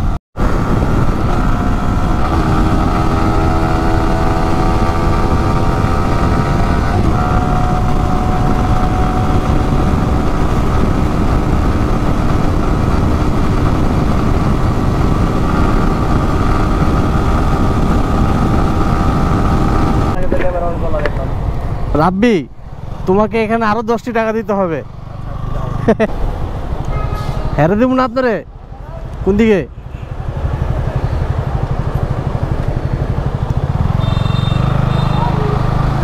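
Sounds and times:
wind rumble on microphone: 0.0s - 23.4s
motorcycle engine running: 28.9s - 36.0s.

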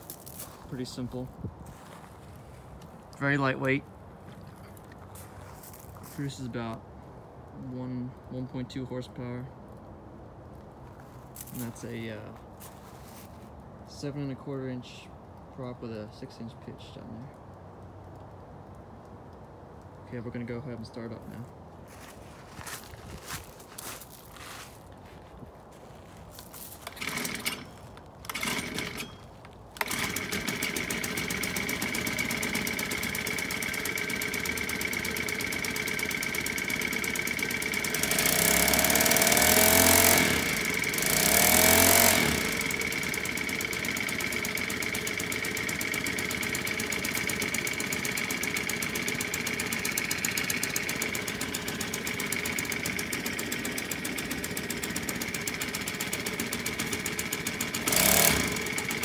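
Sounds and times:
small engine idling and revving: 26.8s - 59.0s
starter cord pulls: 26.8s - 59.0s.

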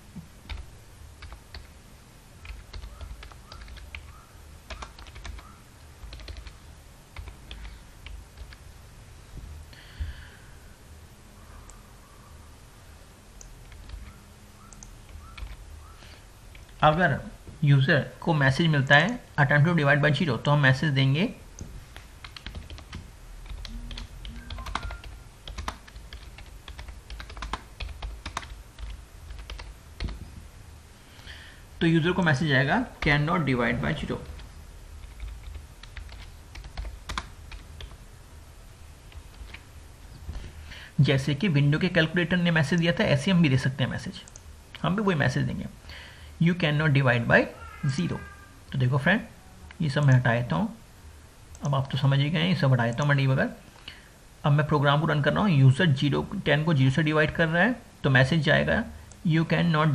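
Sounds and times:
low steady hum: 0.0s - 59.9s
keyboard typing: 0.5s - 1.7s, 2.4s - 6.6s, 7.2s - 8.6s, 13.4s - 15.6s, 21.6s - 30.2s, 33.9s - 38.0s, 39.1s - 39.7s.

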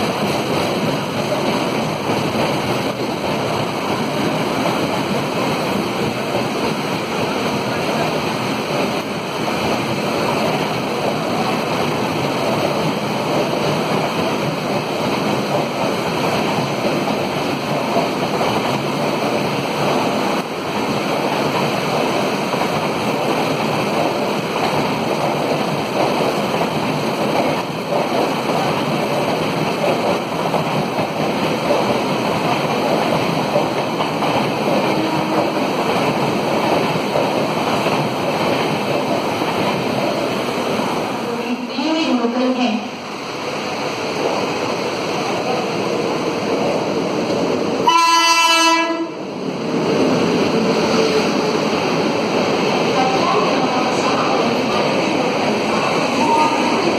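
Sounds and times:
train passing at speed: 0.0s - 56.9s
heavy rain on roof: 7.7s - 40.4s.

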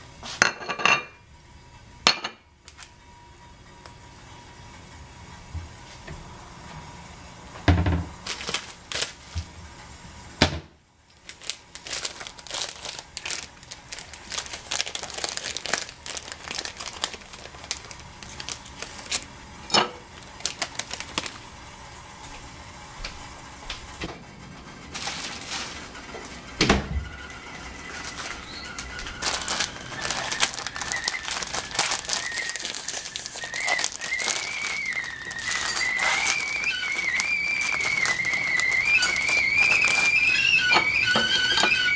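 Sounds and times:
plastic packets crinkling: 8.2s - 9.4s, 11.1s - 19.4s, 20.0s - 21.6s, 24.9s - 26.0s, 27.8s - 40.8s
kettle whistling: 26.9s - 41.9s.

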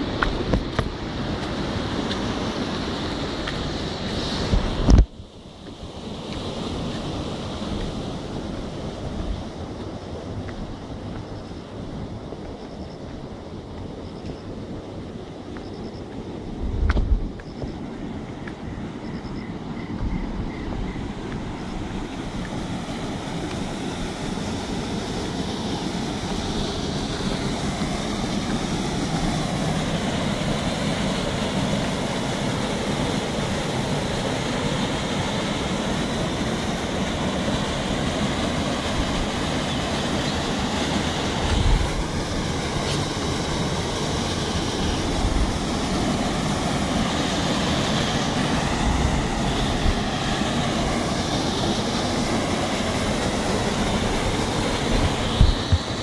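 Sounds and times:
wind rumble on microphone: 0.0s - 56.0s
water rushing over rocks: 21.2s - 56.0s.

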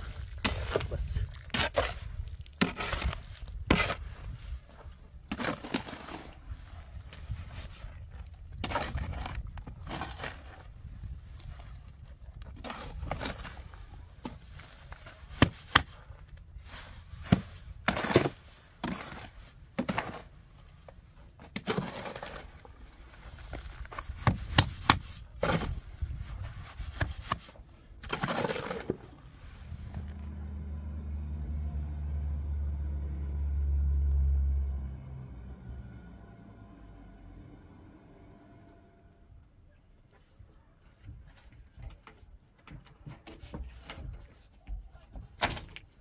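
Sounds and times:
shovel scraping metal wheelbarrow: 0.0s - 6.5s, 8.6s - 10.8s, 16.6s - 20.4s, 21.4s - 27.4s, 28.0s - 30.2s.

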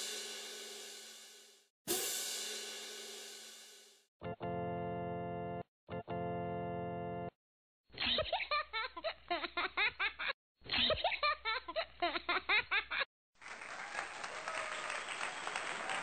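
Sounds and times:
rapid rhythmic laughter: 8.0s - 13.1s.

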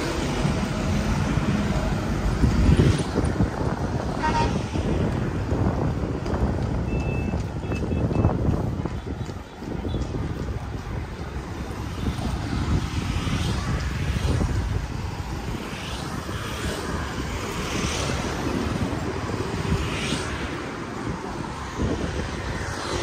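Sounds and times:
motorbikes passing: 0.0s - 23.0s
wind on microphone: 0.0s - 23.0s.

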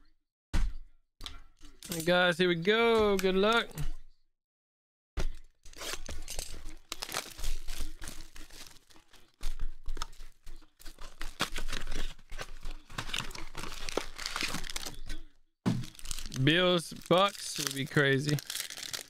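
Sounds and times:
plastic wrap tearing and crinkling: 5.7s - 15.2s, 15.8s - 19.0s
cardboard box handled: 10.9s - 15.0s.

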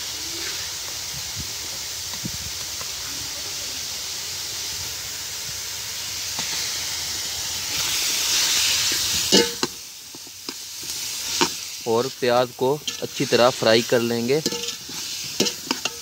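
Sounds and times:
onions sizzling in pot: 0.0s - 16.0s
metal spoon clinking on pot: 14.4s - 16.0s.

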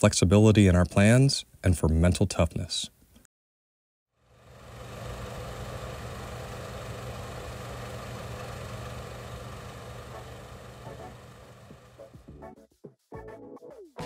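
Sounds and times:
vehicle engine idling: 4.4s - 12.1s.

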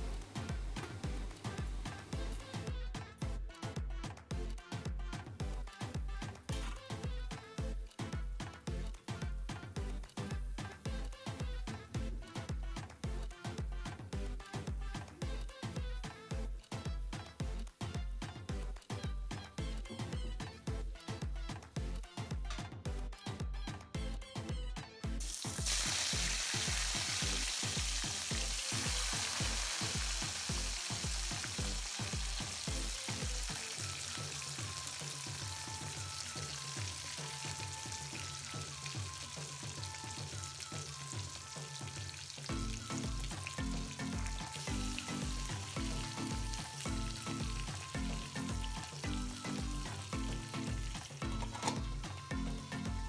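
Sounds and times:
background music with steady beat: 0.0s - 53.0s
fish sizzling in hot oil: 25.2s - 52.0s.

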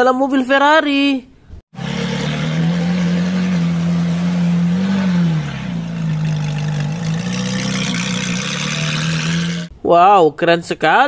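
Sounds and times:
car engine running at low revs: 1.8s - 9.7s.

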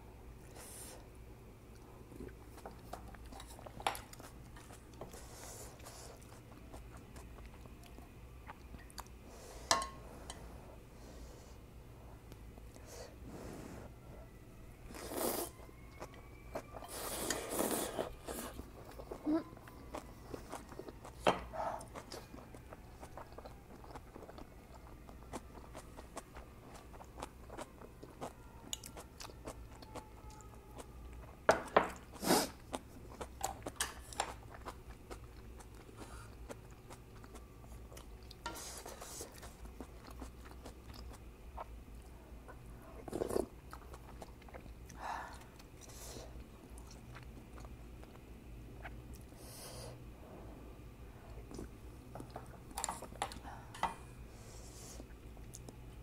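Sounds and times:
close chewing: 1.7s - 9.2s, 14.9s - 49.4s.

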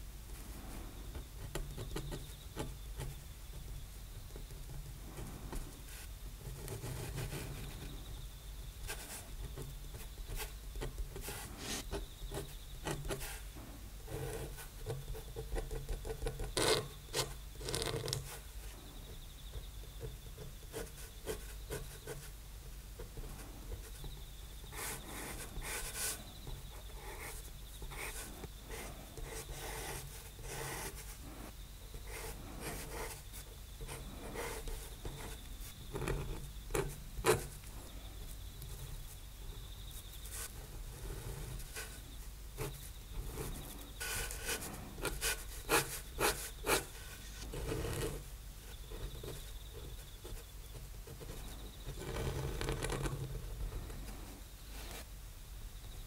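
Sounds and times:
pen nib scratching on paper: 8.9s - 13.4s, 14.1s - 18.4s, 24.7s - 33.2s, 33.8s - 37.6s, 42.6s - 48.3s, 48.9s - 54.3s.

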